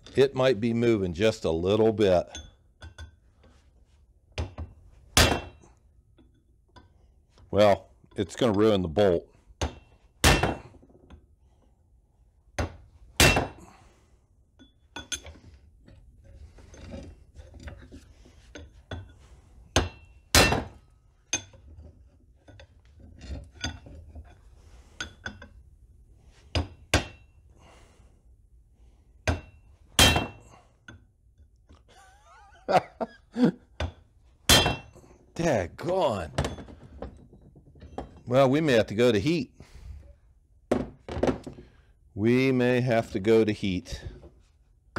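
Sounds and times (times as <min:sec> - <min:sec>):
hammer striking steel punch: 0:05.2 - 0:05.6, 0:09.6 - 0:10.7, 0:13.2 - 0:13.6, 0:19.8 - 0:20.8, 0:29.3 - 0:30.4.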